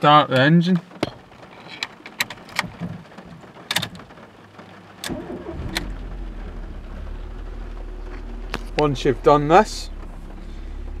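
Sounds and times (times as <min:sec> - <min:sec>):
car engine idling: 0:03.2 - 0:11.0
car engine cranking: 0:04.9 - 0:11.0.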